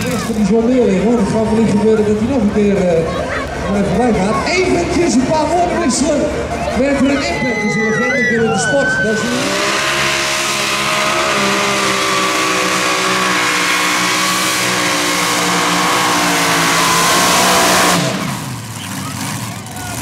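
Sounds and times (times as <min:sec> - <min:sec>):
tractor engine at high revs: 0:08.7 - 0:20.0.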